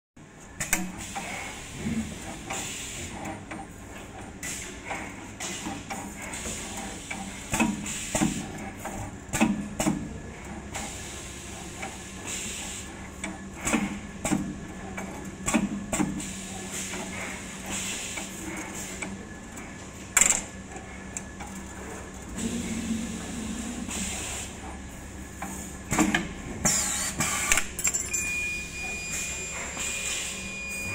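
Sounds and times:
machine motor hum: 0:06.6 - 0:27.7.

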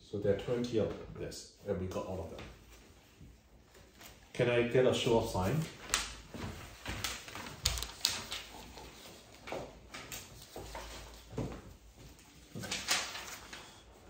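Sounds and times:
paper rustling: 0:05.4 - 0:14.0.

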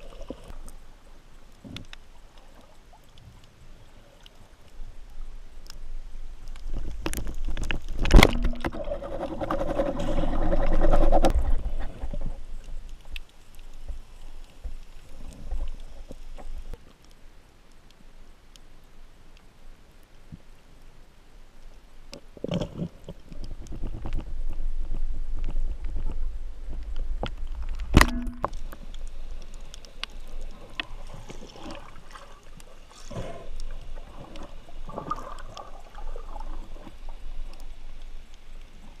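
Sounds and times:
low water rumble: 0:00.0 - 0:19.3, 0:20.1 - 0:39.0
knocks and rustling of struggling fish: 0:06.6 - 0:13.0
speargun firing crack underwater: 0:08.0 - 0:08.8, 0:27.9 - 0:28.6.

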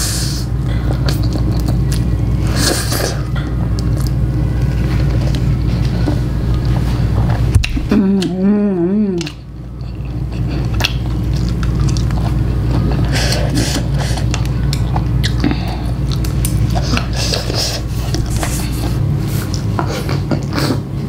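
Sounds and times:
person humming: 0:07.8 - 0:09.5
chewing noodles: 0:09.1 - 0:20.8.

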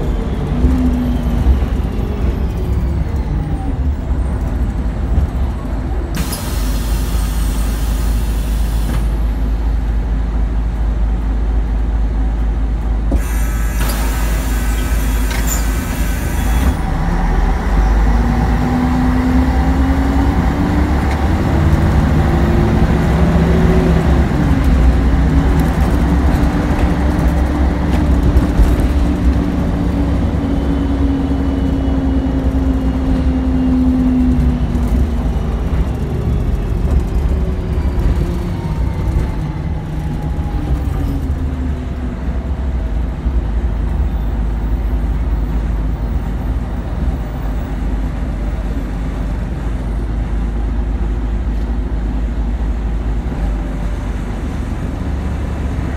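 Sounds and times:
bus engine rumble: 0:00.0 - 0:55.9
bus engine whine: 0:00.0 - 0:55.9.

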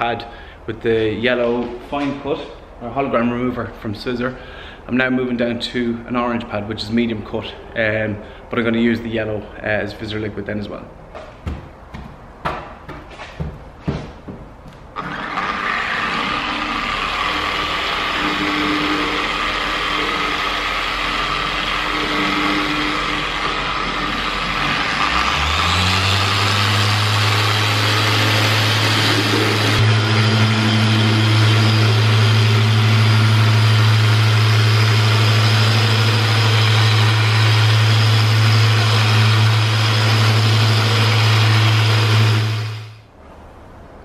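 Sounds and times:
car polisher motor running: 0:15.0 - 0:43.0.

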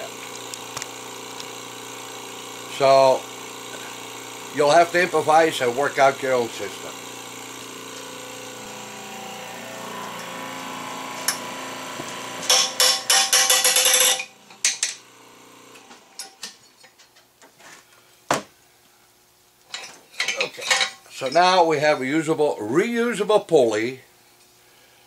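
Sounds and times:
press pump humming: 0:00.0 - 0:17.0.

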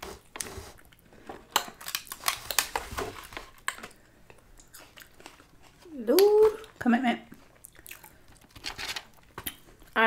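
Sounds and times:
eating crunches: 0:07.5 - 0:08.5.

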